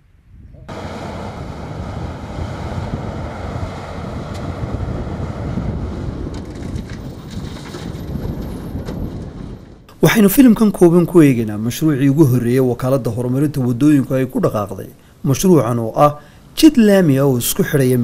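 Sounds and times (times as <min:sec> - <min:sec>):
diesel engine rumbling under load: 0:00.7 - 0:10.0.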